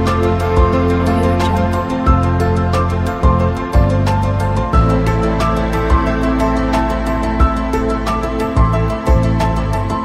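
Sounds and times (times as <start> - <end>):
steady bass: 0.0 - 10.0.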